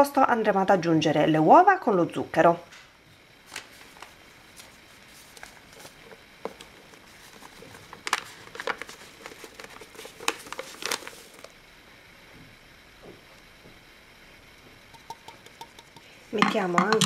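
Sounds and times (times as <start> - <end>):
paper bag crinkling: 3.5 - 11.5.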